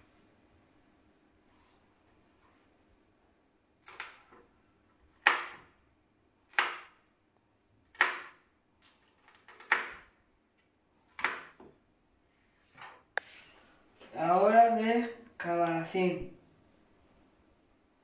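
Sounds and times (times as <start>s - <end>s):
knife chopping on plastic board: 3.8s - 4.5s, 5.1s - 5.8s, 6.5s - 7.0s, 7.9s - 8.4s, 9.2s - 10.1s, 11.1s - 11.8s.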